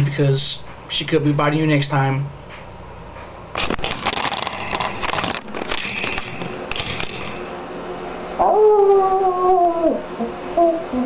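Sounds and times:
man howling like a wolf: 8.4 - 11.0.

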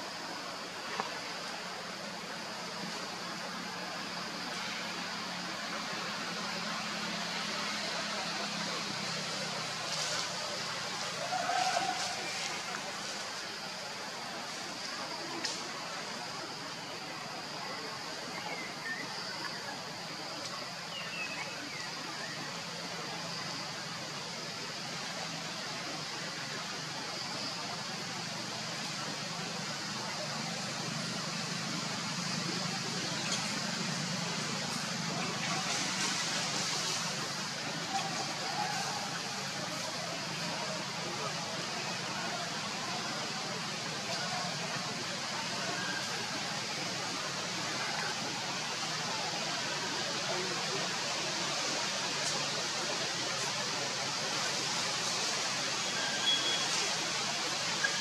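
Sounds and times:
even hiss: 0.0 - 58.0.

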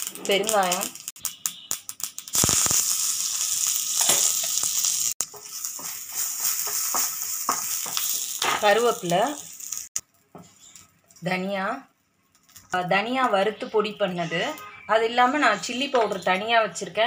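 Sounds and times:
oil crackling: 0.0 - 11.2
leaves sizzling in hot oil: 0.0 - 11.8.

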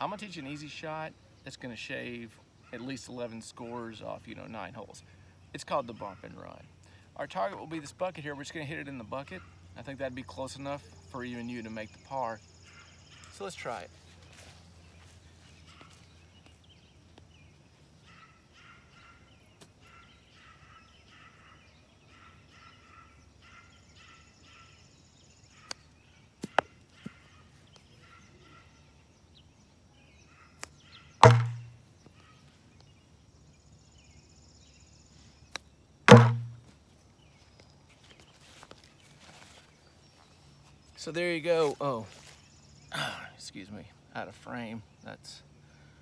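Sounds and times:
faint bird chirps: 8.8 - 36.5
ball thudding into plastic bucket: 31.2 - 31.8, 36.1 - 36.7
golf club hitting ball: 31.2 - 31.8, 36.1 - 36.6.

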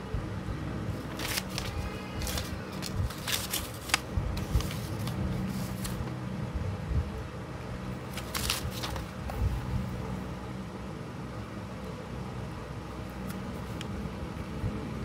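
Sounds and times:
steady low hum: 0.0 - 15.0
paper rustling and crinkling: 0.9 - 6.1, 8.1 - 9.6.

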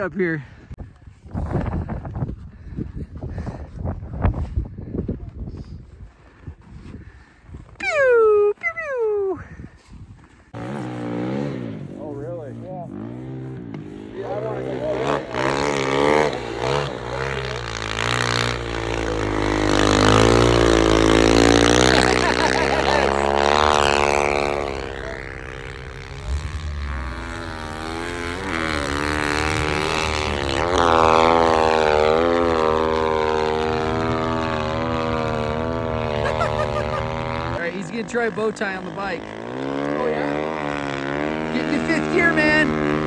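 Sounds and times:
snow bike engine revving: 10.4 - 43.0.

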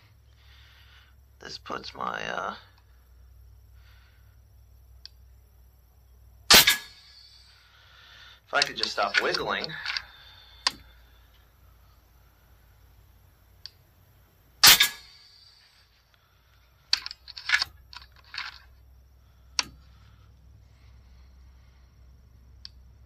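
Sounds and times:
air rifle shot: 6.5 - 7.3, 14.6 - 15.6
rifle lever action clicks: 8.6 - 10.8, 16.9 - 18.6.

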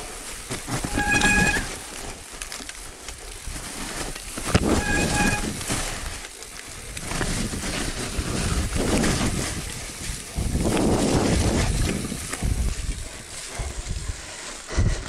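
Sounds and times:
bike tyres and frame rattling: 0.0 - 15.0
bike brakes squealing: 0.7 - 2.1, 4.6 - 6.0.

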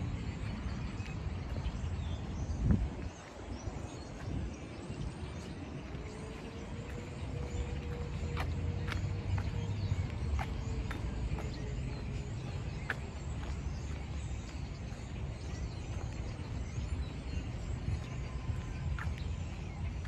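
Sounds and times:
distant traffic rumble: 0.0 - 20.0
wind: 0.0 - 20.0
faint footstep clicks: 5.8 - 16.5.

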